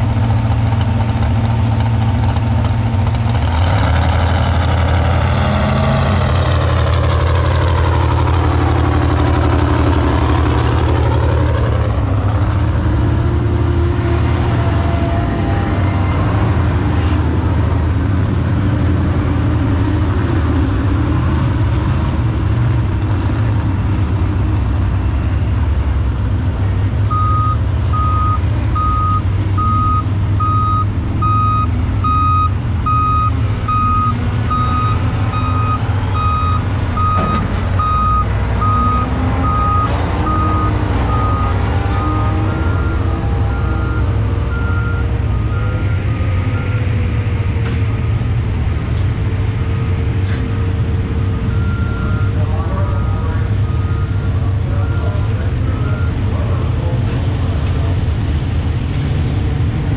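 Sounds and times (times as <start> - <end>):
heavy vehicle engine running: 0.0 - 59.9
reversing alarm beeping: 27.1 - 47.0.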